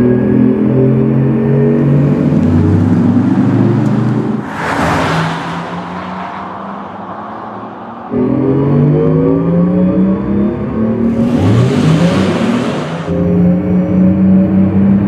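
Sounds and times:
car drive hum: 0:00.0 - 0:15.0
car passing whoosh: 0:02.8 - 0:08.8, 0:11.1 - 0:13.2.

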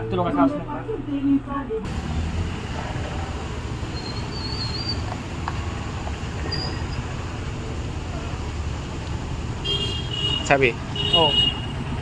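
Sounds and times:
low outdoor rumble: 0:00.6 - 0:10.1.

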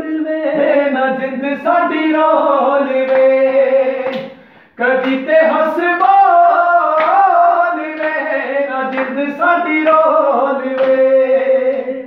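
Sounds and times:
two men singing unaccompanied: 0:00.0 - 0:12.0
hand claps: 0:03.0 - 0:12.0.

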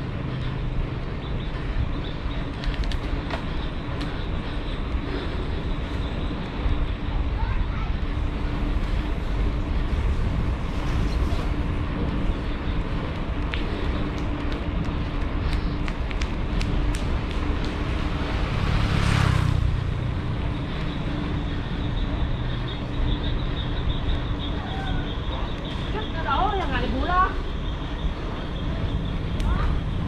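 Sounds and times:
passing vehicle: 0:00.0 - 0:30.0
wind and road noise: 0:00.0 - 0:30.0.

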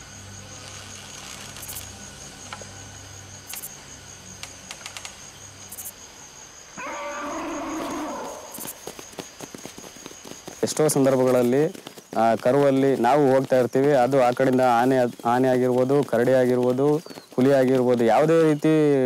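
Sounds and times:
insects trilling: 0:00.0 - 0:19.0
drawn-out animal call: 0:06.8 - 0:09.8
footsteps on dry leaves: 0:06.8 - 0:19.0.

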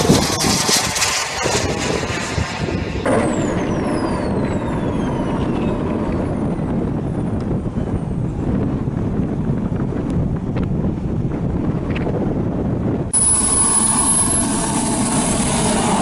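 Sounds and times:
jet engine whine winding down: 0:00.0 - 0:08.2, 0:13.1 - 0:16.0
model jet rushing overhead: 0:00.0 - 0:09.1, 0:13.1 - 0:16.0.

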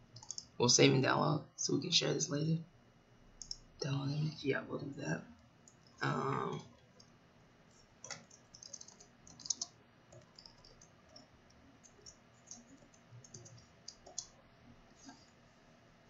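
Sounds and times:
keyboard key clicks: 0:08.1 - 0:10.8.

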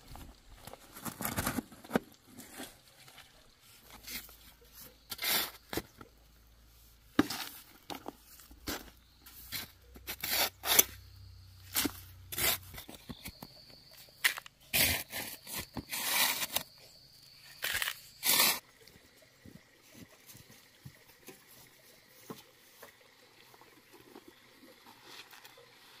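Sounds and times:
spade scraping dry soil: 0:03.8 - 0:06.1, 0:07.2 - 0:18.7.

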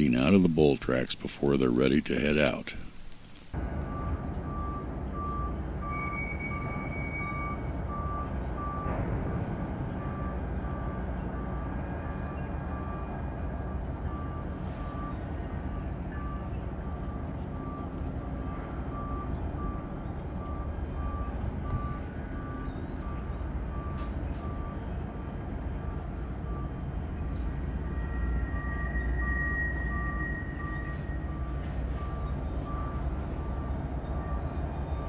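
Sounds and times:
rumble of rail cars: 0:03.5 - 0:35.0
high steady squeal: 0:05.8 - 0:07.7, 0:27.6 - 0:35.0.

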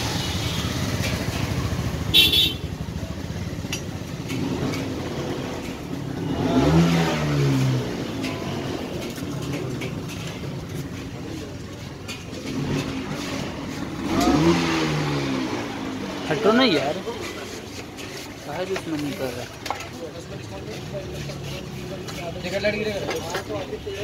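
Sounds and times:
vehicle engines running: 0:00.0 - 0:24.0
engine revving: 0:04.2 - 0:10.7, 0:12.4 - 0:17.0.

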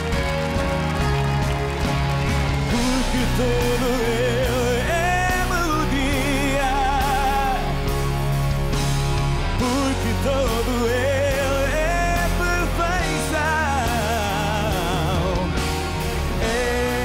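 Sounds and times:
pop-rock band playing: 0:00.0 - 0:17.0
man singing with vibrato: 0:02.7 - 0:08.0, 0:09.6 - 0:17.0.

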